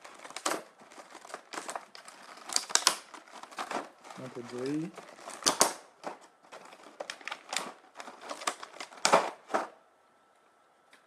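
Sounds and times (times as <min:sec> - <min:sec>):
plastic blister tray crinkling: 0:00.0 - 0:09.8
sharp plastic snaps: 0:01.5 - 0:03.8, 0:05.2 - 0:06.2.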